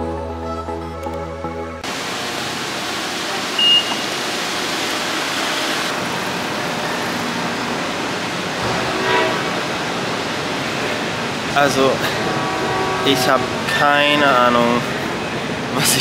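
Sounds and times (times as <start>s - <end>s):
station concourse rushing noise: 1.8s - 16.0s
short electronic beep: 3.6s - 4.0s.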